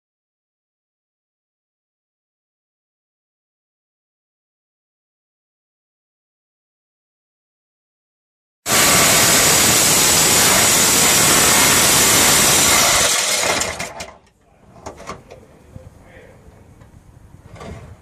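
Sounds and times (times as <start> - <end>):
power tool cutting steel: 8.7 - 14.2.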